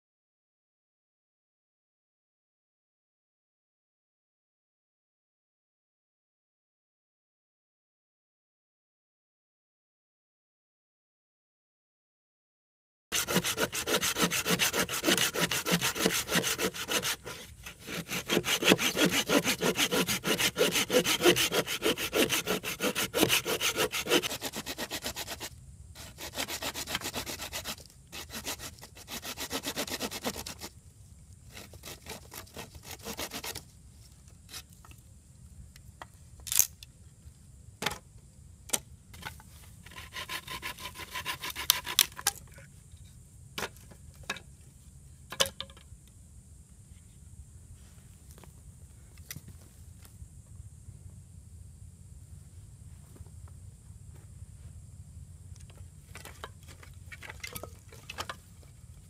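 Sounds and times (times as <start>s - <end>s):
hand saw cutting wood: 13.1s - 30.7s, 31.5s - 33.6s, 39.9s - 42.2s.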